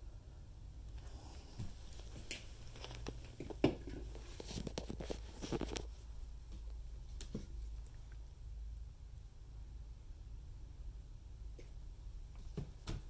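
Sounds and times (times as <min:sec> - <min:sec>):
low steady rumble: 0:00.0 - 0:12.4
rustling and crinkling: 0:00.9 - 0:08.2.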